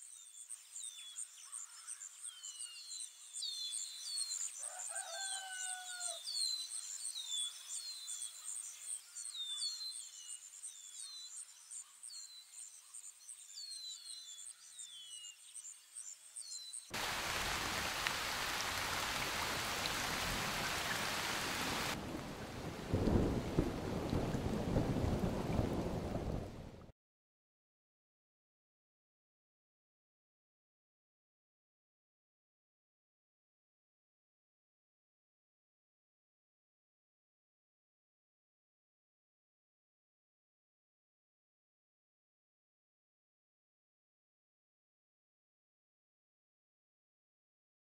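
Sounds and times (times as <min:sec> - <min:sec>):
heavy rain: 0:17.0 - 0:26.9
thunder rumble: 0:18.6 - 0:26.9.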